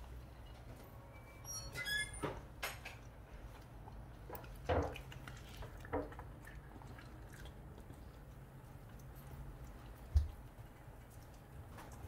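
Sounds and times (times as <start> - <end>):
dog eating: 3.4 - 12.0.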